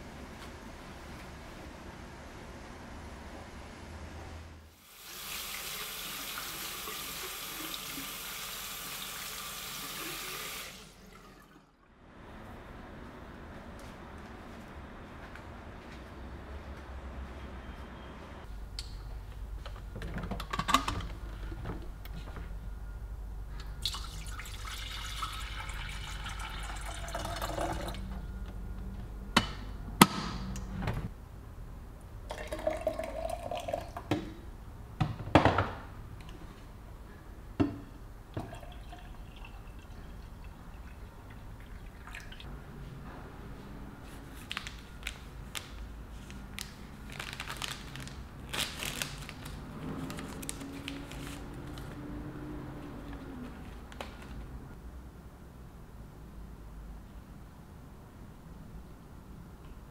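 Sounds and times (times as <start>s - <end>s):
water pouring into flask: 9.3s - 11.8s, 23.8s - 28.0s, 32.3s - 34.1s, 38.4s - 42.4s.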